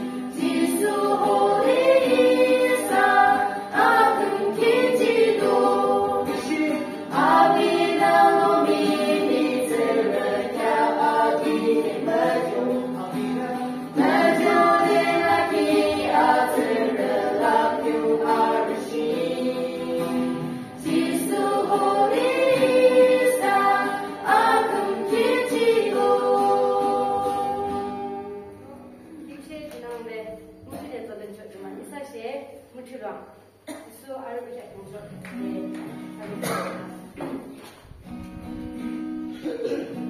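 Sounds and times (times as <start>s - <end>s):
group singing a hymn: 0.0s - 28.6s
acoustic guitar: 0.0s - 31.9s, 32.5s - 40.0s.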